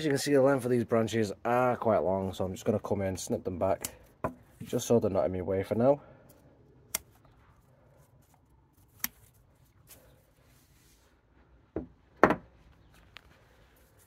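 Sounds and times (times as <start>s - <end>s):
cutters snipping branches: 6.3s - 7.4s, 8.8s - 10.0s
knocks: 11.8s - 12.5s.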